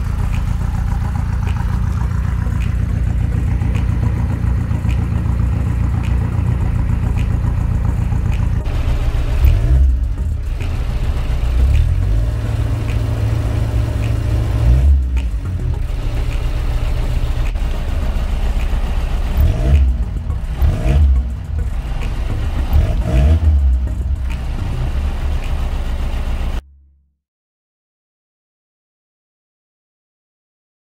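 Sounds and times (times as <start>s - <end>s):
diesel engine running inside car: 0.0s - 26.6s.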